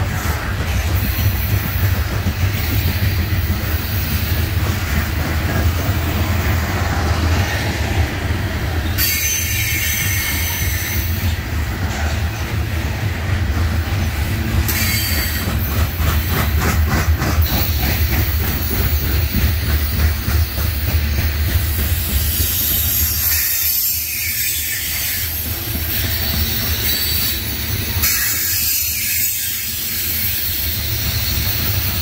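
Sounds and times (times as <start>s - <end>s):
train wheels rumbling on rail: 0.0s - 32.0s
high-pitched wheel squeal: 8.8s - 11.4s, 22.3s - 31.9s
wheels clacking over rail joints: 8.8s - 32.0s.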